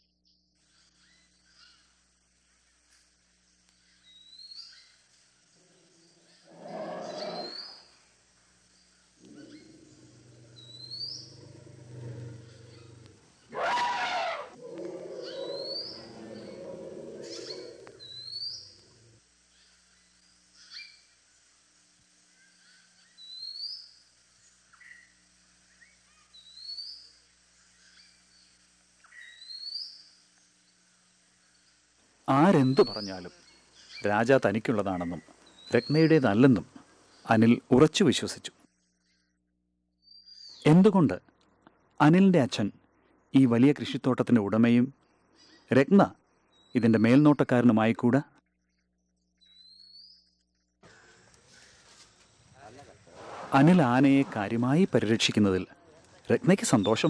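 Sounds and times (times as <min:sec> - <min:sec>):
bird rising chirp: 0:05.6 - 0:07.9, 0:09.2 - 0:19.2
elephant calling: 0:06.4 - 0:07.8, 0:09.2 - 0:19.1.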